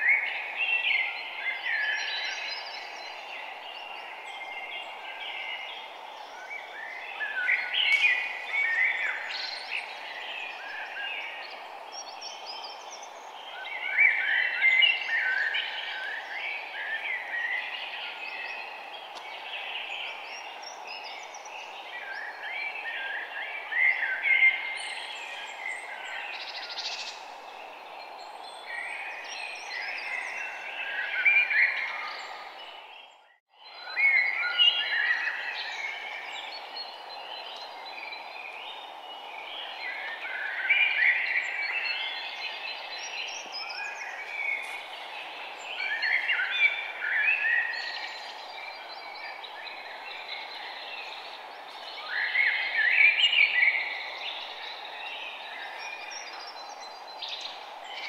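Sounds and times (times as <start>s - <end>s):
steady background hiss: 0.0s - 33.0s, 33.7s - 58.0s
small birds chirping: 0.0s - 58.0s.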